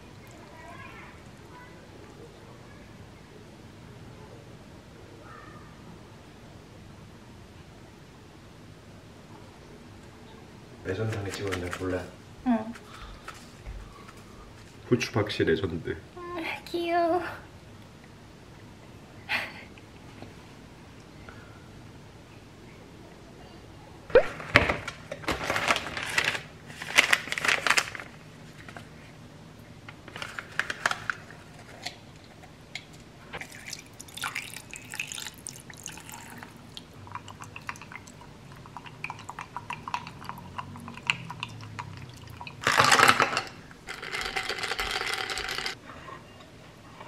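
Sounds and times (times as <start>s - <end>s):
water poured into a glass: 33.4s - 42.6s.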